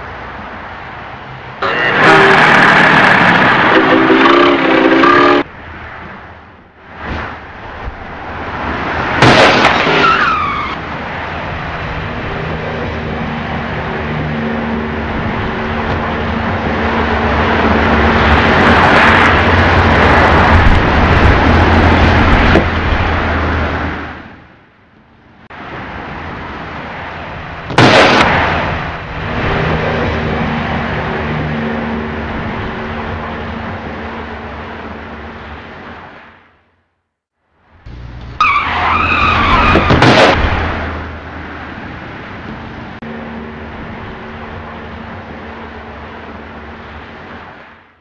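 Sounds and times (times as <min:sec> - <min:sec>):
road traffic: 0:00.0 - 0:48.0
tyres squealing: 0:01.6 - 0:05.4, 0:09.6 - 0:10.8, 0:38.3 - 0:40.1
car crash impact: 0:09.2 - 0:10.7, 0:27.7 - 0:28.5, 0:38.4 - 0:41.1.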